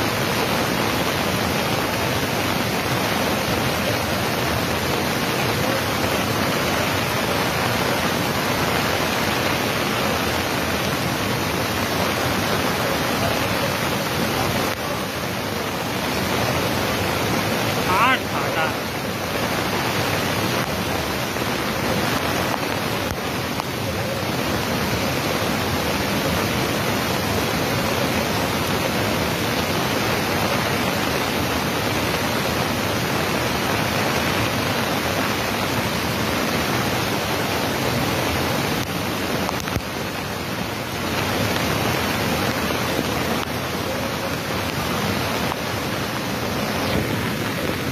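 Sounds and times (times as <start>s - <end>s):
floodwater rushing: 0.0s - 47.9s.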